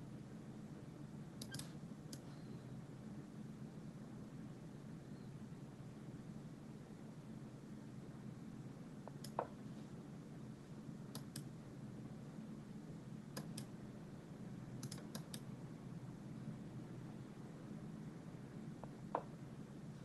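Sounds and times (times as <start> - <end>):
low steady hum: 0.0 - 20.0
computer mouse clicks: 1.4 - 2.4, 9.1 - 9.6, 11.1 - 11.5, 13.4 - 13.7, 14.8 - 15.5.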